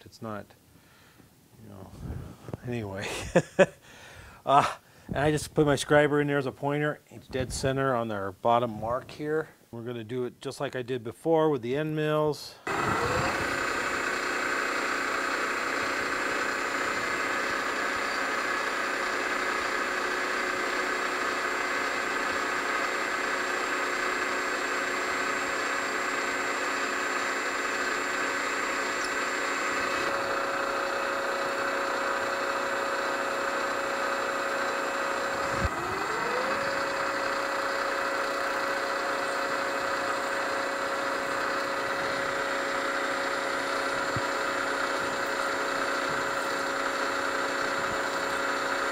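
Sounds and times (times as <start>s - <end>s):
cutter boring into metal: 12.7s - 48.9s
milling machine motor humming: 12.7s - 48.9s.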